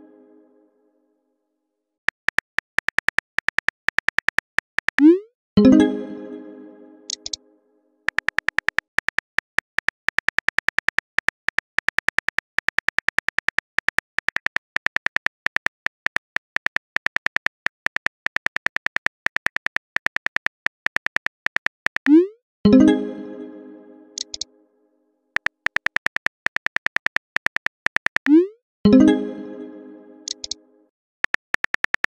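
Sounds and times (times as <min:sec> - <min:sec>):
phone keyboard clicks: 0:02.1 - 0:05.0, 0:07.1 - 0:07.4, 0:08.1 - 0:22.1, 0:24.2 - 0:24.5, 0:25.4 - 0:28.3, 0:30.3 - 0:30.6, 0:31.2 - 0:32.0.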